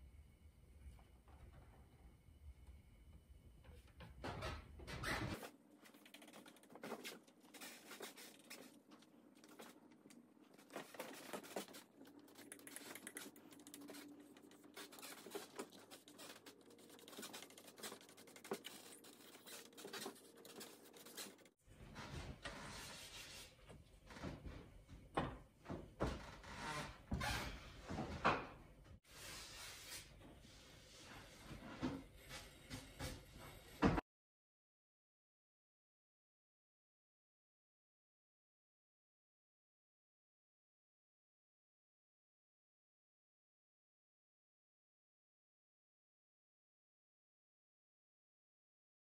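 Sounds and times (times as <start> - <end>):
paper scratching and rustling: 5.4 - 9.8, 10.6 - 21.6.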